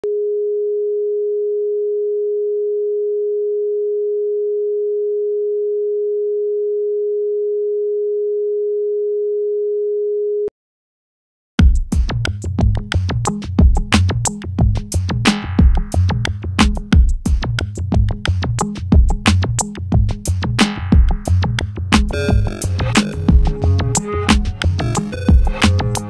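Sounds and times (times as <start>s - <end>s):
electronic pop music: 22.0s - 26.0s
electronic sine tone: 22.1s - 26.0s.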